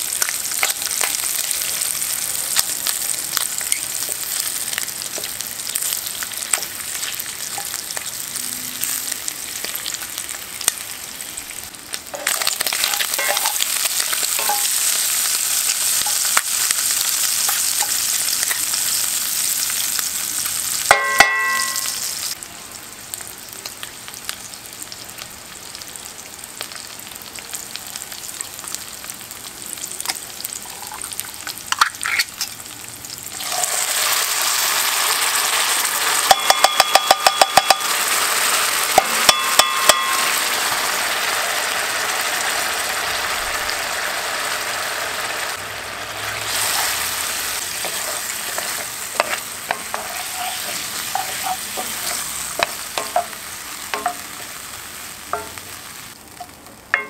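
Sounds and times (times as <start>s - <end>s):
food sizzling in a skillet: 0.0s - 57.0s
wooden spoon scraping and stirring: 47.6s - 53.3s.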